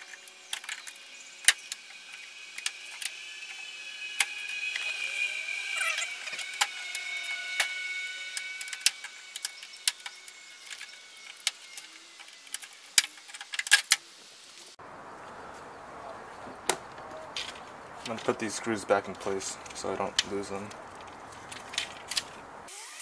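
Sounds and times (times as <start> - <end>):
thin high tone: 0.0 - 13.2
outdoor hiss: 0.0 - 15.8
screwdriver clicking metal screws: 5.7 - 14.0.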